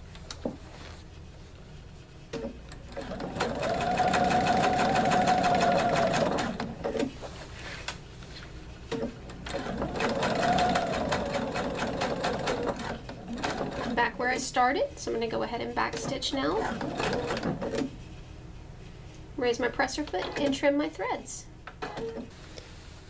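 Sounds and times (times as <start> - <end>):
sewing machine stitching: 2.7 - 7.1, 9.4 - 14.4, 15.8 - 17.9.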